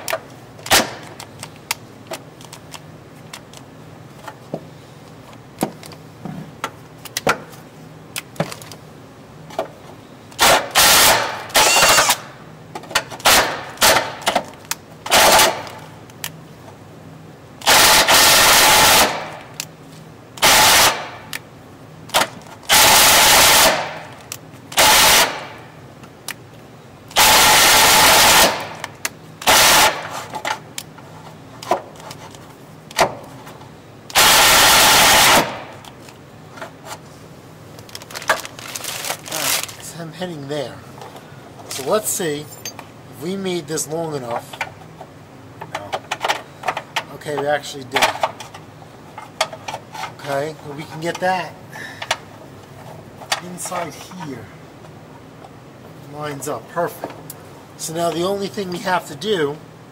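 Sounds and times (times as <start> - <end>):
power tool cutting steel: 10.8 - 12.2.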